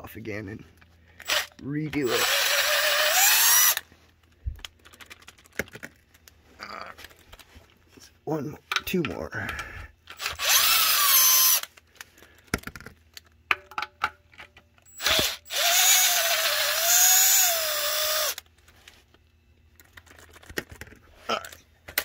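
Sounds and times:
power tool motor whine: 2.1s - 3.8s, 10.2s - 11.6s, 15.0s - 18.4s.

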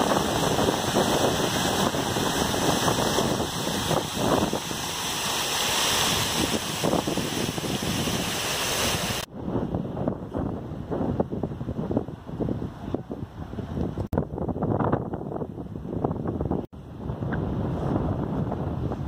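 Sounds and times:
fountain water splashing: 0.0s - 9.3s.

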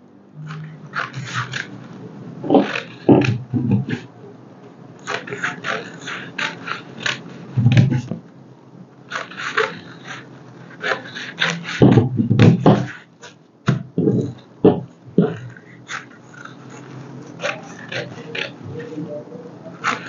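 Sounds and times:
dull thumps: 10.8s - 13.0s, 13.7s - 15.6s.

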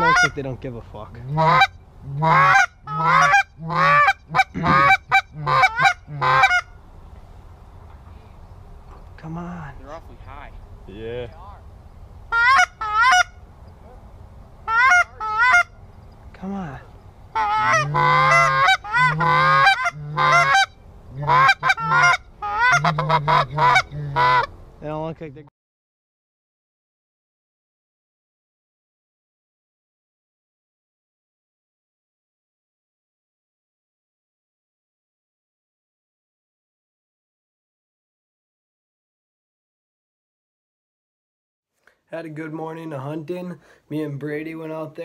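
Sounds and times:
goose call honks and clucks: 0.0s - 0.4s, 1.2s - 6.8s, 12.3s - 14.0s, 14.6s - 15.8s, 17.3s - 24.6s.

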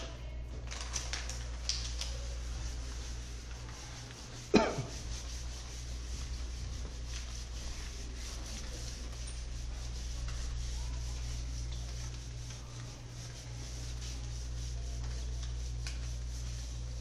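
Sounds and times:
steady low hum: 0.0s - 17.0s
faint rubbing and scratching: 0.7s - 17.0s.

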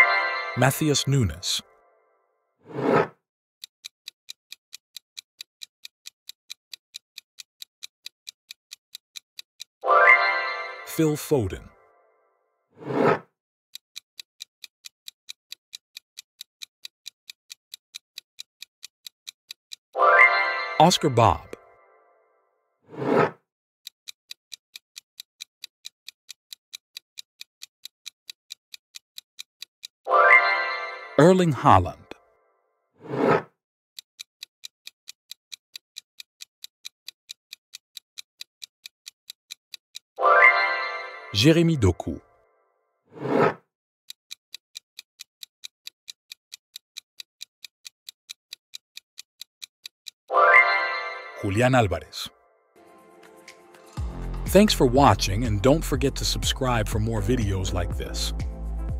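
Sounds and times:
clock ticking: 0.0s - 1.7s, 2.9s - 11.8s, 12.8s - 21.7s, 23.0s - 32.2s, 33.1s - 42.2s, 44.1s - 50.7s, 54.0s - 58.6s
countdown timer ticking: 0.0s - 1.8s, 8.5s - 11.9s, 19.7s - 21.8s, 30.1s - 32.2s, 40.2s - 42.2s, 48.3s - 52.3s, 53.4s - 58.9s.

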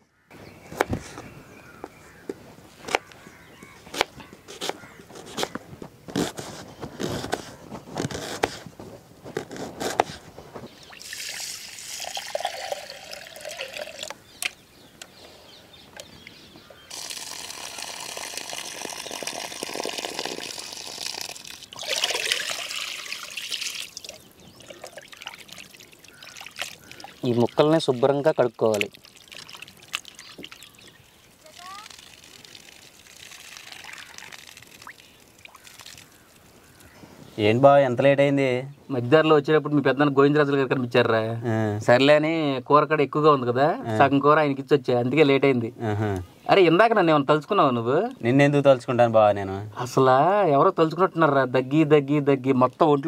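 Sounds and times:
water pouring and splashing: 10.7s - 14.2s, 16.9s - 36.6s.

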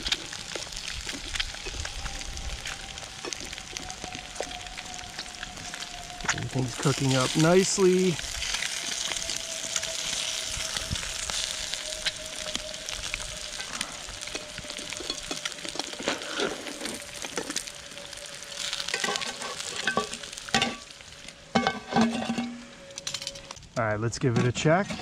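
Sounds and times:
food sizzling in a frying pan: 0.0s - 23.6s.

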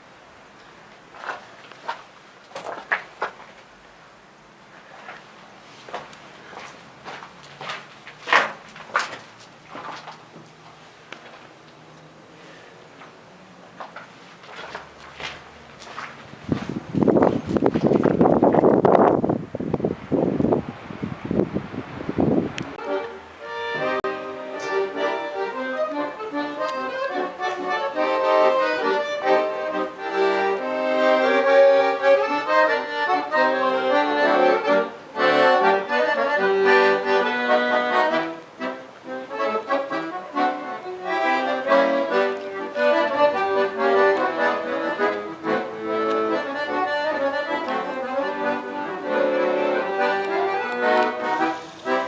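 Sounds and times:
accordion playing traditional music: 22.6s - 52.0s.

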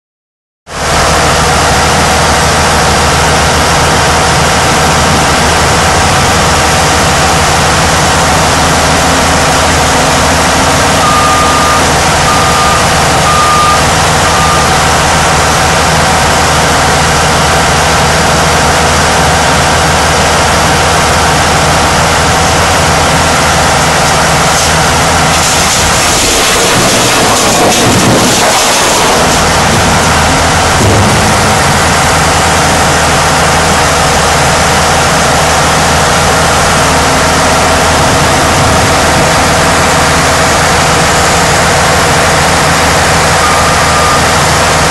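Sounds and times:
diesel engine running: 0.7s - 44.9s
backup alarm beeping: 8.8s - 14.9s, 43.2s - 44.8s.

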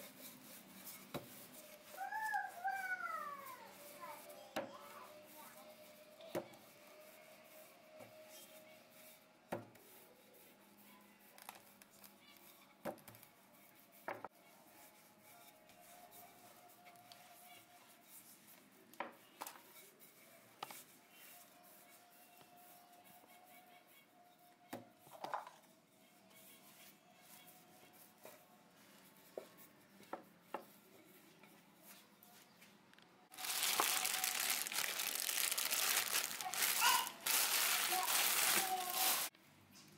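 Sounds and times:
rolling pin working dough: 0.0s - 10.8s
rolling pin rubbing on dough: 0.0s - 11.8s, 12.4s - 32.4s
plastic wrap crinkling: 33.3s - 39.3s.

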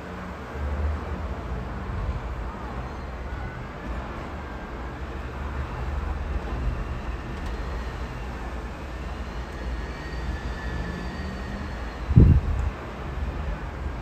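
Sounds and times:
road traffic: 0.0s - 14.0s
wind rumbling on microphone: 12.0s - 12.8s.

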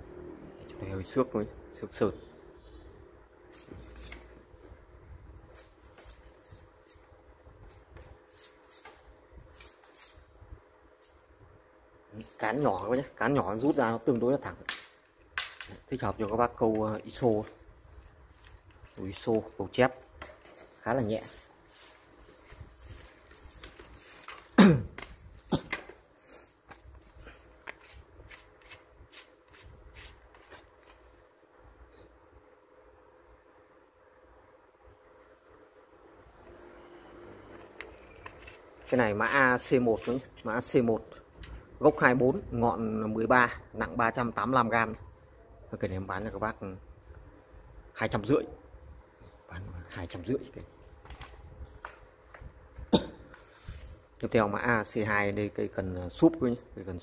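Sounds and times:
handling rustles and taps: 14.1s - 26.0s, 26.6s - 31.2s, 50.8s - 53.5s.

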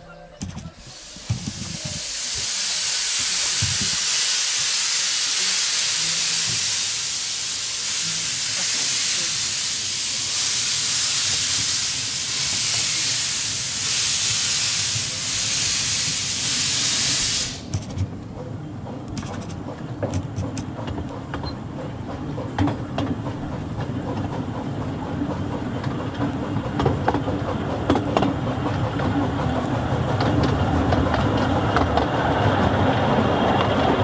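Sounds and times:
train running noise: 0.0s - 34.0s
steam hissing from locomotive: 0.8s - 17.7s.

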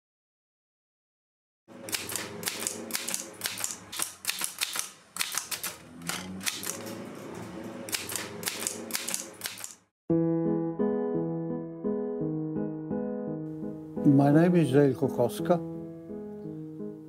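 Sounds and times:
typewriter keys clacking: 1.9s - 9.9s.

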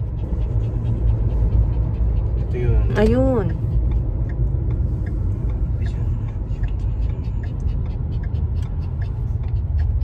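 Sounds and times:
car rumble inside cabin: 0.0s - 10.0s
light ticks: 3.0s - 10.0s.

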